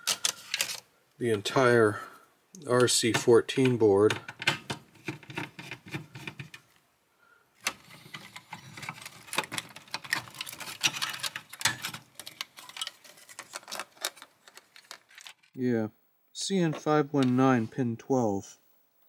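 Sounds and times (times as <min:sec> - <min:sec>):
circuit board rattling against metal: 0:08.6 - 0:14.2.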